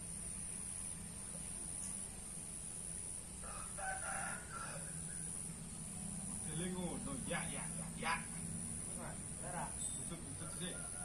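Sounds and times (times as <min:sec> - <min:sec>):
rooster crowing: 0:03.4 - 0:05.4, 0:10.4 - 0:11.0.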